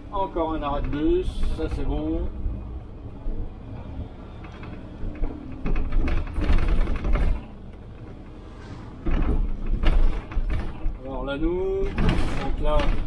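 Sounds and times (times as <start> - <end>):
clattering and rattling in bus: 0.0 - 13.0
low rumble: 6.9 - 11.0.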